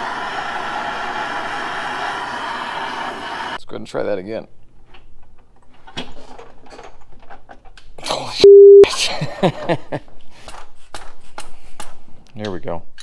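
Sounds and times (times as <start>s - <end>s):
censor bleep: 8.4s - 8.9s.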